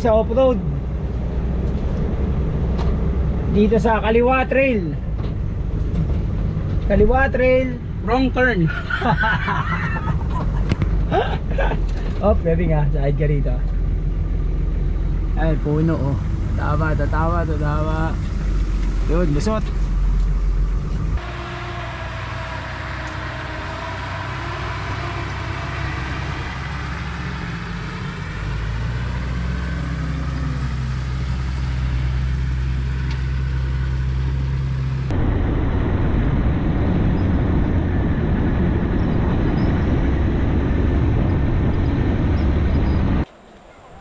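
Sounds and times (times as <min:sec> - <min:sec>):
rough noisy rumble: 0:00.0 - 0:44.0
vehicle engine under load: 0:00.0 - 0:44.0.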